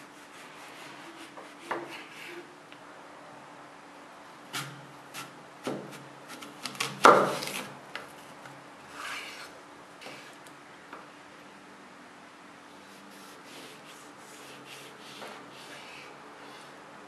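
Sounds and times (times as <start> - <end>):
knife cutting apple: 0.0 - 2.5, 4.5 - 7.8
knife scraping: 8.9 - 10.4.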